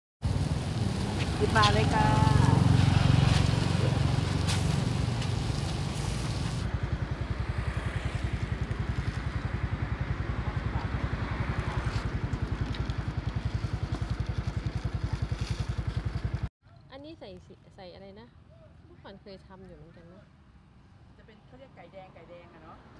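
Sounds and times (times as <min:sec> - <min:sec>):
small engine idling: 0:00.2 - 0:16.5.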